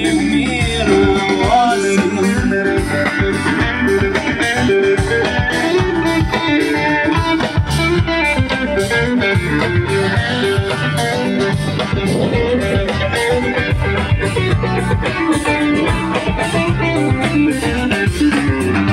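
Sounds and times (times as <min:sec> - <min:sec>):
bass guitar: 0:00.0 - 0:18.9
electric guitars: 0:00.0 - 0:18.9
steady drum beat: 0:00.0 - 0:18.9.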